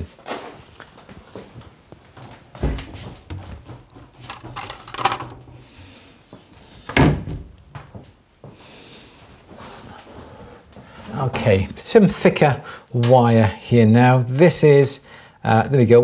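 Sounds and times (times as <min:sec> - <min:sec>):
knocks and thuds of storage: 0:02.6 - 0:05.6, 0:06.9 - 0:07.6.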